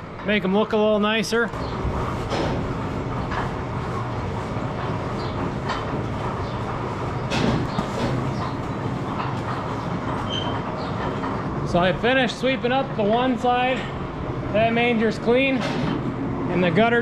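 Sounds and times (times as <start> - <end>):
loud mechanical knock: 1.6 - 3.6, 7.2 - 11.4, 15.6 - 16.2.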